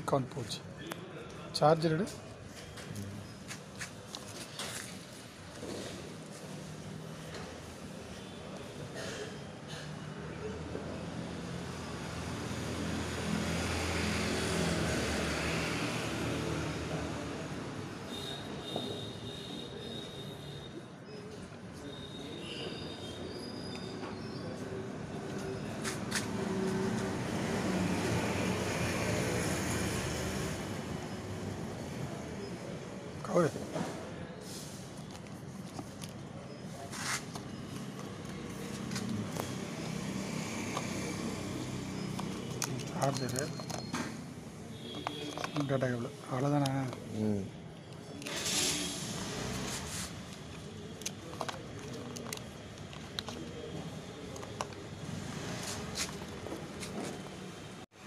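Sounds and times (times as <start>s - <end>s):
traffic engine rumble: 23.0s - 58.0s
road hiss: 34.4s - 35.0s, 48.3s - 50.2s.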